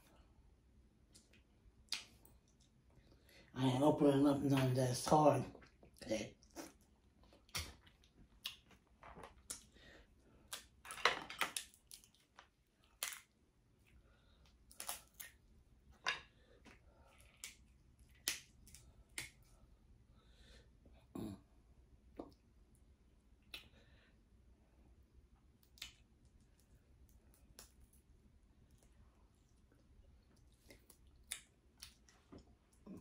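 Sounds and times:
chewing: 5.6 - 9.8, 16.6 - 19.4, 28.6 - 33.0
crab shell cracking: 14.7 - 15.4.

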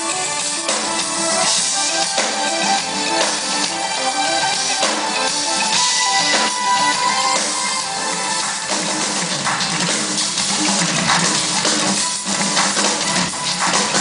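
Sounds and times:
backing track sustained notes: 0.0 - 14.0
drum hits: 4.6 - 14.0.

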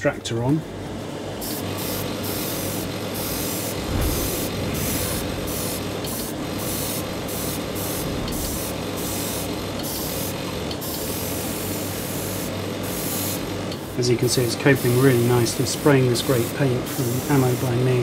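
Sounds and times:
airbrush hissing in bursts: 1.4 - 18.0
extractor fan humming: 1.6 - 10.8.

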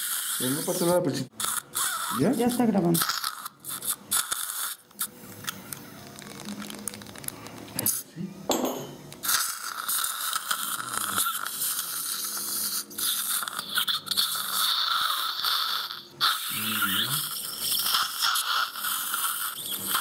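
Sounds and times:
dental drill whining: 0.0 - 4.8, 9.2 - 20.0.

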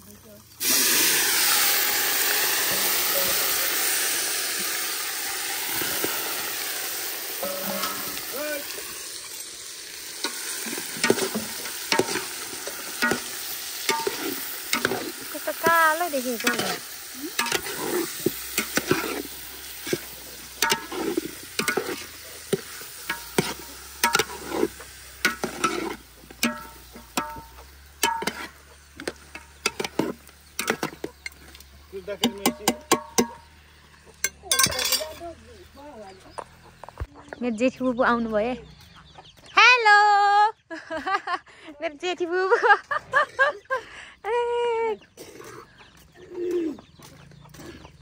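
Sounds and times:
chicken sizzling in a pan: 0.0 - 35.0
stirring and scraping pan: 5.6 - 33.5.

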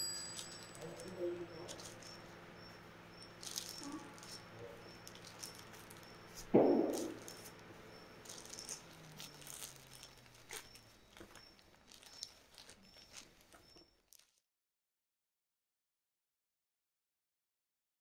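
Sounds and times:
plastic bag crinkling: 0.0 - 2.3, 3.2 - 14.4
dull thud: 6.5 - 7.2.

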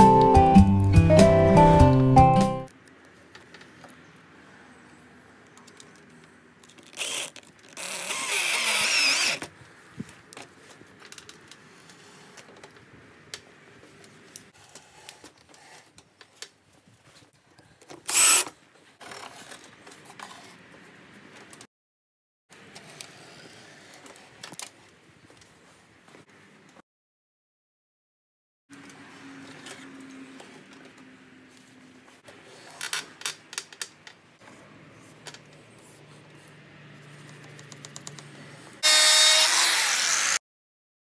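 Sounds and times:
cordless drill running: 7.0 - 9.4, 18.1 - 18.5, 38.8 - 40.4.

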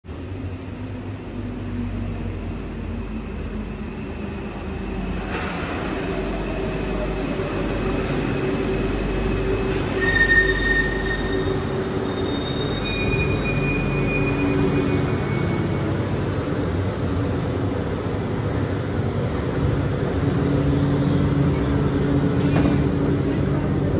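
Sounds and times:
metro train rumble: 0.0 - 23.9
high-pitched brake squeals: 9.2 - 16.3.

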